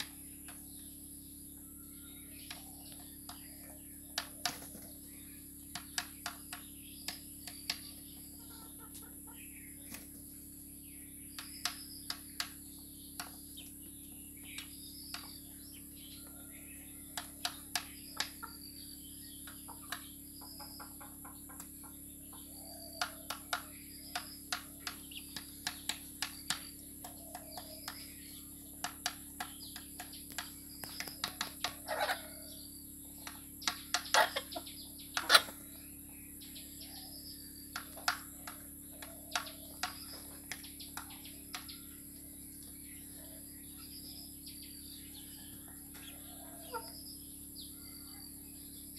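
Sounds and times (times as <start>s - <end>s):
chicks chirping: 0.0s - 48.9s
beaks tapping on bowl: 5.6s - 8.0s, 11.3s - 13.7s, 23.0s - 32.6s, 33.2s - 35.6s, 37.6s - 42.0s
chickens clucking: 5.8s - 10.3s, 16.2s - 18.8s, 19.4s - 35.8s, 37.7s - 42.8s, 45.2s - 47.0s.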